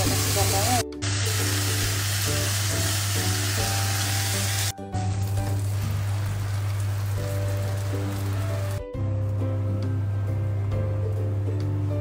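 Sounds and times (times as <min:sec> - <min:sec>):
meat sizzling in frying pan: 0:00.0 - 0:08.9
bread crackling in hot oil: 0:00.1 - 0:08.8.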